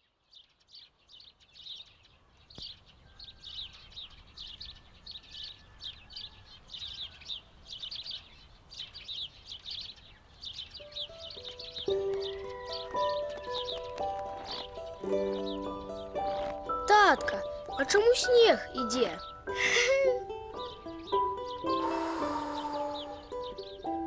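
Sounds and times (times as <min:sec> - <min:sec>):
birds chirping: 0:00.0 - 0:24.0
music notes: 0:11.2 - 0:24.0.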